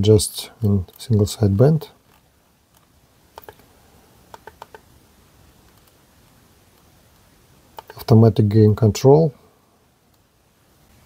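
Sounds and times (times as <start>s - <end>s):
rotary knob clicks: 2.1s - 3.6s, 4.3s - 4.9s, 7.8s - 8.0s.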